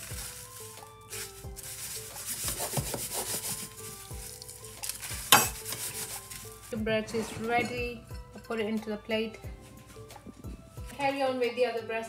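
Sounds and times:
breadcrumbs rustling and scratching: 0:00.0 - 0:06.8.

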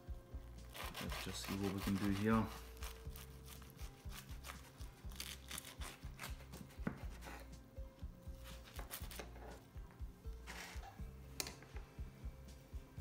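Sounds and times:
knife cutting crusty bread: 0:00.7 - 0:07.6, 0:08.4 - 0:09.6.

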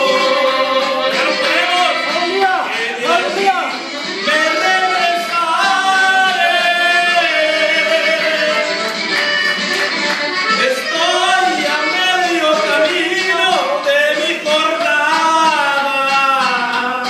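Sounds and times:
man singing: 0:00.0 - 0:09.1, 0:10.4 - 0:17.0
accordion-like melody: 0:00.0 - 0:17.0
guitar: 0:00.0 - 0:17.0
drums: 0:03.5 - 0:17.0.

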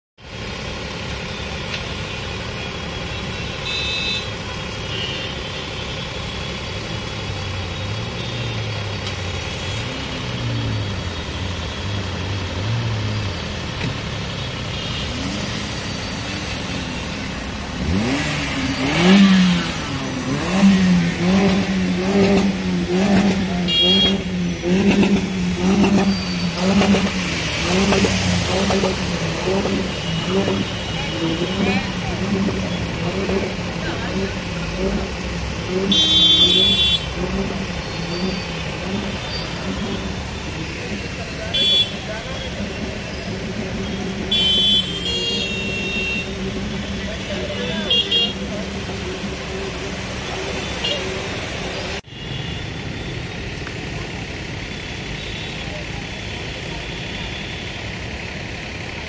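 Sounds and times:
vehicle engines running: 0:00.2 - 0:59.0
nearer engine revving: 0:07.9 - 0:52.1.

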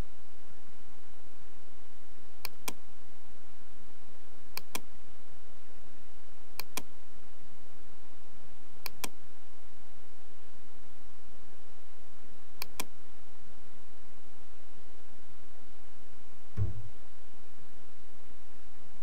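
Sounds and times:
low background noise: 0:00.0 - 0:19.0
computer mouse button clicks: 0:04.6 - 0:04.8, 0:08.8 - 0:09.2, 0:12.6 - 0:12.9.

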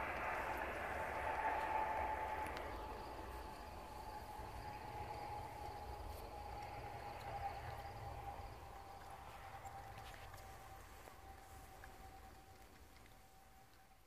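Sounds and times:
crickets and insects trilling: 0:00.0 - 0:14.0
wind rumble on microphone: 0:00.0 - 0:14.0.

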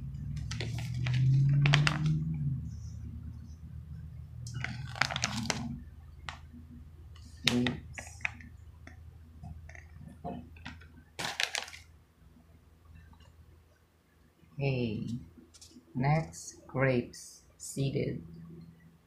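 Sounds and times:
plastic pouch crinkling: 0:00.4 - 0:02.2, 0:04.5 - 0:06.5, 0:10.6 - 0:11.9.

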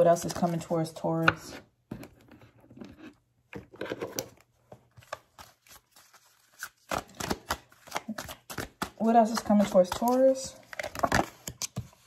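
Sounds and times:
cards being shuffled: 0:05.0 - 0:12.0.

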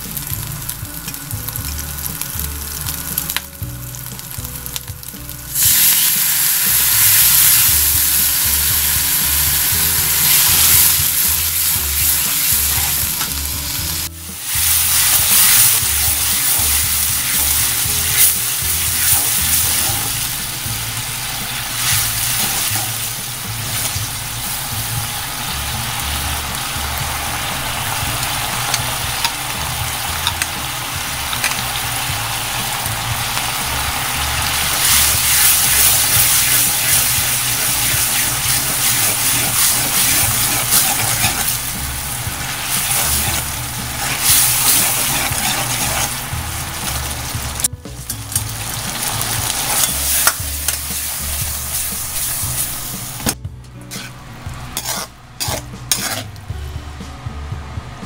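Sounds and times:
food sizzling in hot oil: 0:00.0 - 0:56.4.

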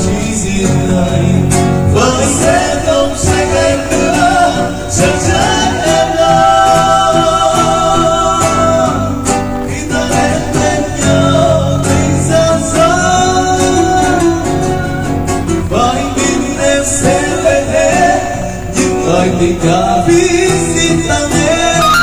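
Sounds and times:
acoustic guitars: 0:00.0 - 0:22.0
man singing a pop ballad: 0:00.0 - 0:22.0.

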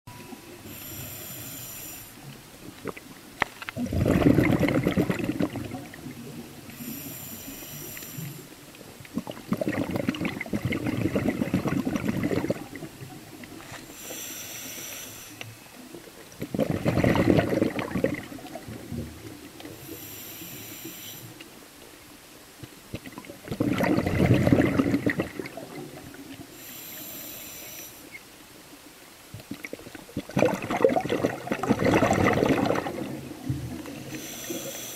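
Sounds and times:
regulator inhale hiss: 0:00.6 - 0:02.3, 0:06.7 - 0:08.6, 0:13.7 - 0:15.7, 0:19.6 - 0:21.5, 0:26.5 - 0:28.2, 0:33.8 - 0:34.9
exhaust bubbles underwater: 0:03.8 - 0:06.8, 0:09.1 - 0:13.6, 0:16.4 - 0:19.8, 0:22.9 - 0:26.5, 0:29.4 - 0:34.5.

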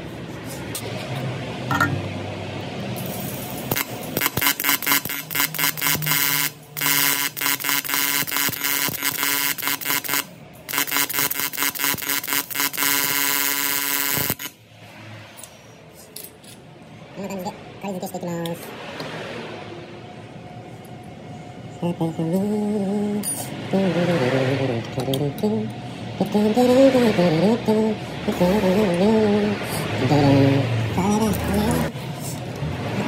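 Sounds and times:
welding arc pulsing buzz: 0:03.0 - 0:14.7.

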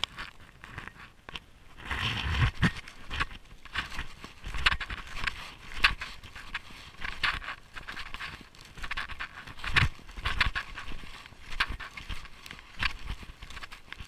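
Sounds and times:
snowshoe footsteps crunching snow: 0:00.0 - 0:14.0.

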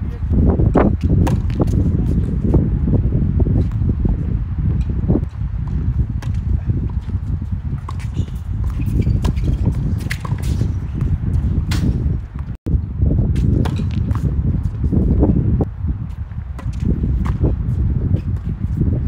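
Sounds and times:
constant low rumble: 0:00.0 - 0:19.0
tennis racquets hitting ball: 0:01.0 - 0:01.8, 0:05.6 - 0:12.5.

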